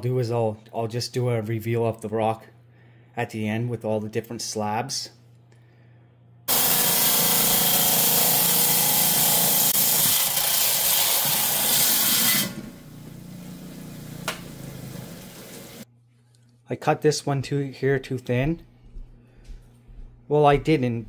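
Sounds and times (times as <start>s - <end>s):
rock saw grinding: 6.5s - 12.8s
saw running idle: 6.5s - 15.8s.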